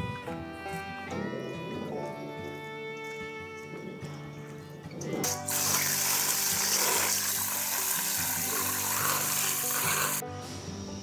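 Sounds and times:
background music: 0.0s - 11.0s
water spraying from hose into bowl: 5.2s - 10.2s.

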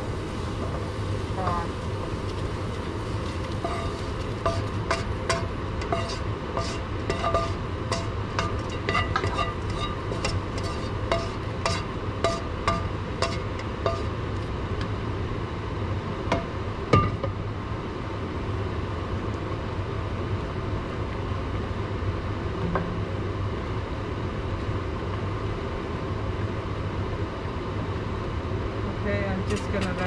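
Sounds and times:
steady low hum: 0.0s - 30.0s
utensil clinking against cookware: 3.4s - 14.1s.

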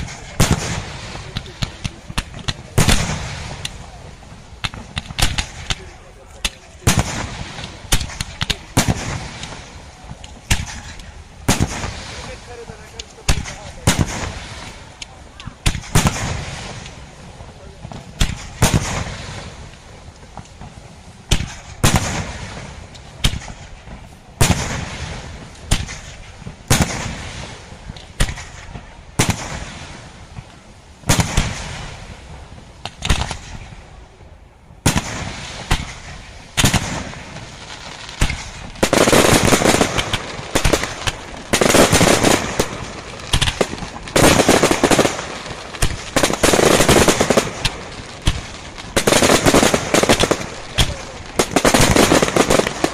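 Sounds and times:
firework shells bursting: 0.0s - 32.1s, 32.8s - 33.8s, 34.8s - 52.9s.

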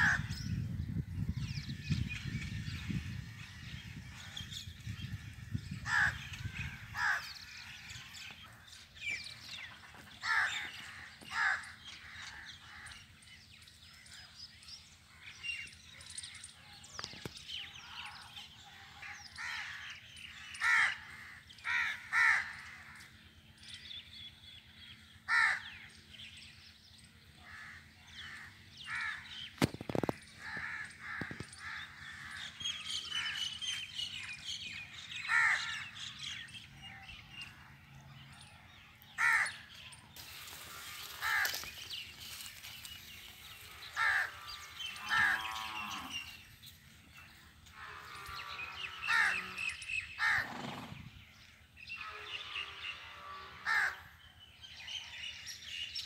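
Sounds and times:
crows cawing: 0.0s - 0.3s, 5.7s - 8.5s, 9.9s - 13.0s, 19.3s - 23.1s, 25.3s - 25.8s, 27.4s - 29.4s, 30.4s - 33.8s, 35.0s - 36.4s, 39.2s - 46.4s, 47.6s - 50.5s, 53.6s - 54.1s.

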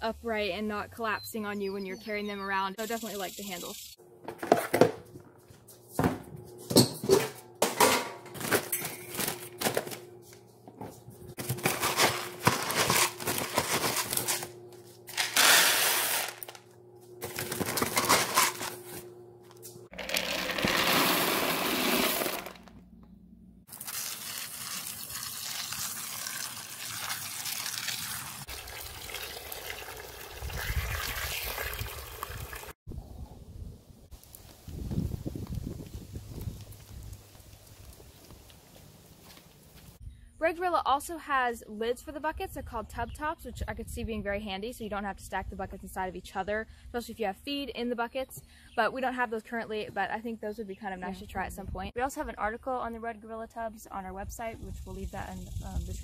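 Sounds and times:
rubber tubs knocking and clattering: 11.4s - 14.5s
feed being poured: 19.9s - 22.7s, 23.7s - 32.7s
hose running water into tub: 20.0s - 22.6s, 23.7s - 32.8s.

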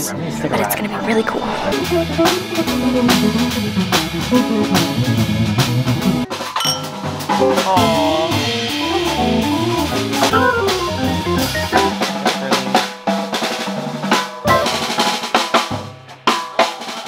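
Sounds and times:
keyboard: 0.0s - 12.9s, 14.5s - 15.0s
electric guitar: 1.3s - 6.4s, 7.4s - 12.2s
drum kit snare and cymbals: 1.6s - 17.0s.

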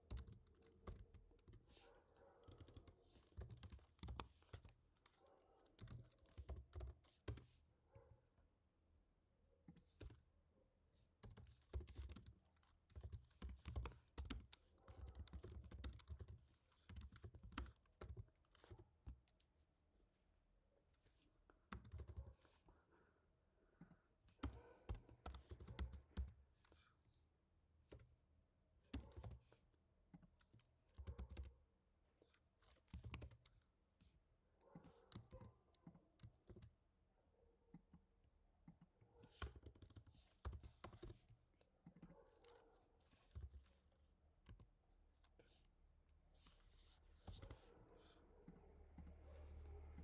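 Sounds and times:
computer keyboard typing: 0.0s - 1.8s, 2.4s - 7.5s, 11.2s - 19.4s, 21.7s - 22.4s, 24.4s - 26.8s, 28.9s - 29.5s, 30.1s - 31.6s, 32.2s - 33.7s, 35.1s - 36.8s, 39.3s - 41.3s.

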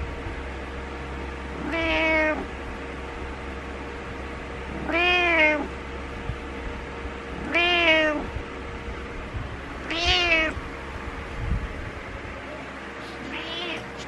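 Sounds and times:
steady low hum: 0.0s - 14.0s
cat meowing: 1.5s - 2.5s, 4.7s - 5.7s, 7.4s - 8.3s, 9.8s - 10.6s, 13.0s - 14.0s.

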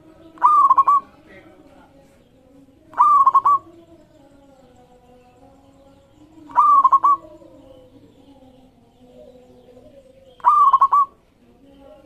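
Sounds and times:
faint low dove calls: 0.0s - 1.2s, 6.5s - 7.4s, 9.2s - 11.2s
dove calling: 0.0s - 4.9s, 6.0s - 12.0s.

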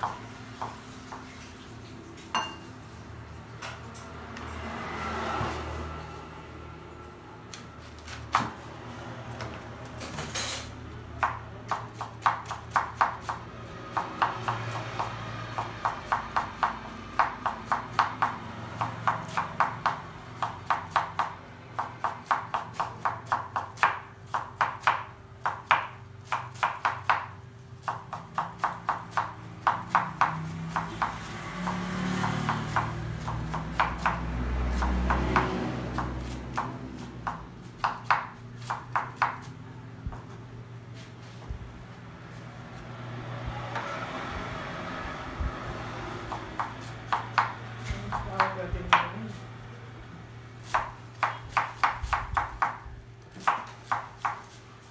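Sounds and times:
knife chopping on wooden board: 0.0s - 1.3s, 8.1s - 8.7s, 11.2s - 40.4s, 46.2s - 49.2s, 50.6s - 54.6s.

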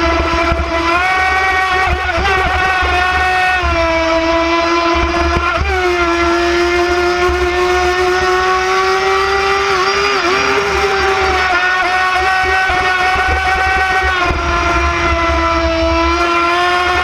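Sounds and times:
electric motor whining: 7.4s - 17.0s.

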